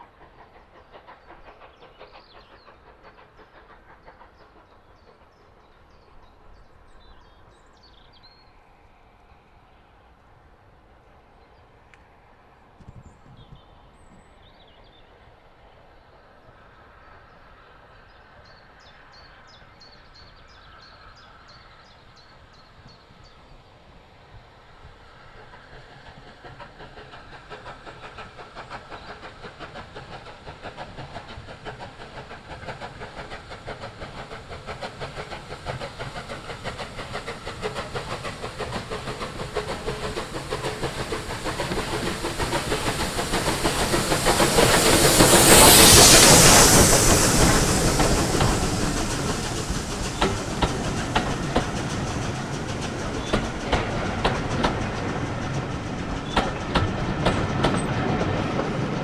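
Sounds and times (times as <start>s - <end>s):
steam locomotive exhaust beats: 0.0s - 7.5s, 24.7s - 59.0s
loud rush of steam: 0.0s - 10.1s, 15.3s - 59.0s
train wheels clickety-clack: 0.0s - 10.4s, 15.7s - 59.0s.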